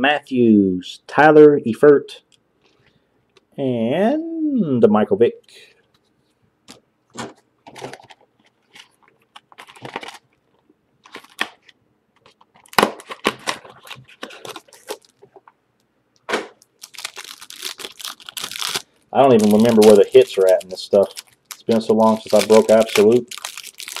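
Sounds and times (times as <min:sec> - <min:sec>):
plastic packaging crinkling: 0:06.7 - 0:15.5, 0:16.2 - 0:24.0
trading cards clicking and rustling: 0:16.2 - 0:24.0.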